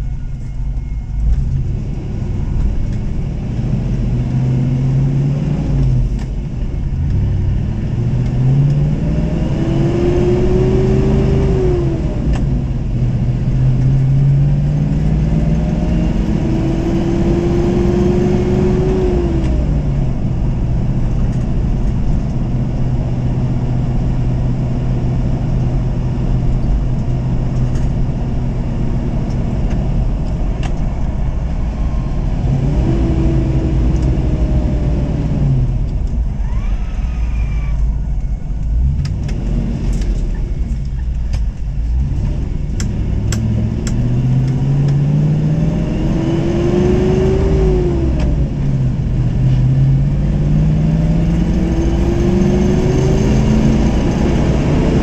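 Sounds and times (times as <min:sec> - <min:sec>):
truck engine accelerating: 0:00.0 - 0:55.0.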